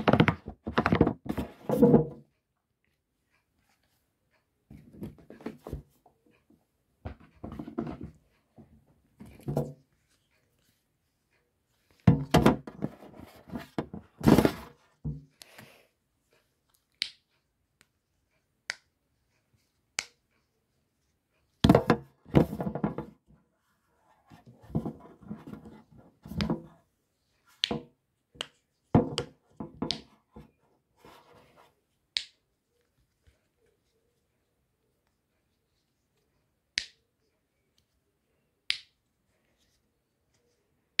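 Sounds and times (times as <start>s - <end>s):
fidget toys knocking and rubbing: 0.0s - 2.3s, 7.0s - 9.9s, 12.0s - 15.3s, 21.6s - 23.3s, 24.3s - 26.8s.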